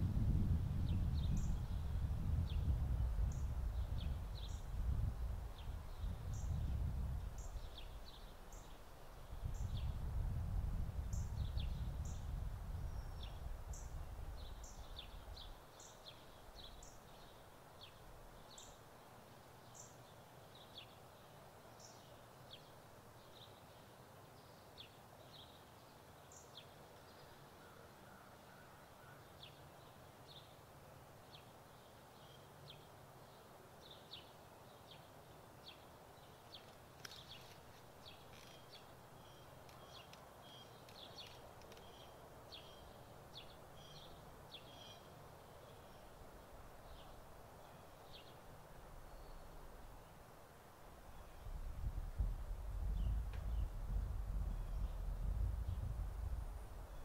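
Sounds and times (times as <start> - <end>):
low wind rumble: 0.0 - 15.6, 48.2 - 57.0
wind rustling in trees: 0.0 - 57.0
birds chirping: 35.7 - 46.2.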